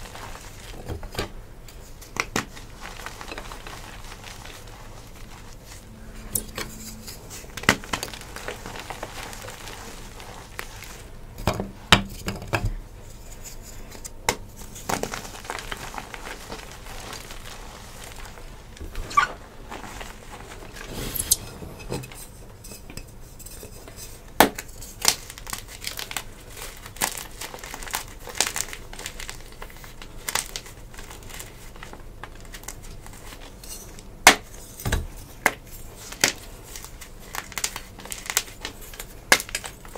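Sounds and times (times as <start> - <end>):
hands crumbling chalk: 0.0 - 5.8, 35.4 - 39.9.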